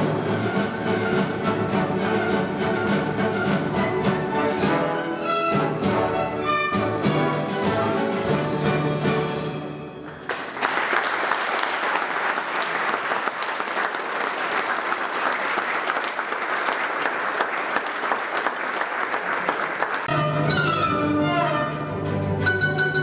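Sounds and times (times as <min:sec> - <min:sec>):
orchestra playing: 0:00.0 - 0:10.2, 0:20.0 - 0:23.0
audience applauding: 0:10.0 - 0:20.1.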